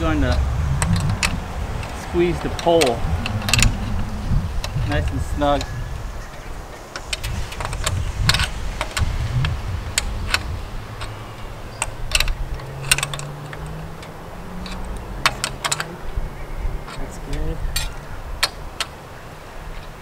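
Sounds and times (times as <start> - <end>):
tool and hardware clicks: 0.8 - 4.0, 10.0 - 15.9.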